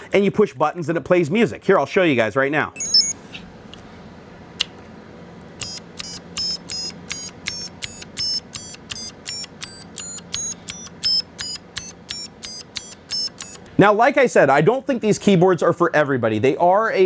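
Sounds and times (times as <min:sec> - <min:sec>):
high-pitched electronic beeping notes: 0:02.8 - 0:03.2, 0:06.4 - 0:13.6.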